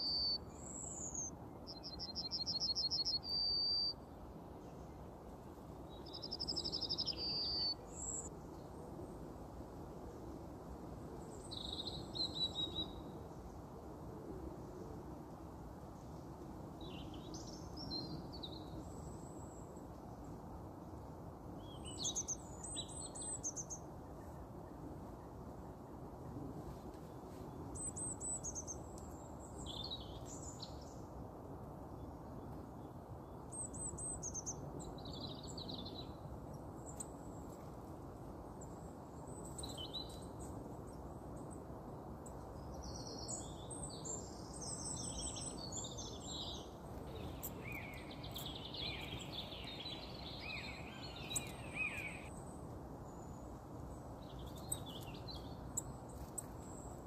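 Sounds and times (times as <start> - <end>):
birds chirping and singing: 47.2 - 52.3.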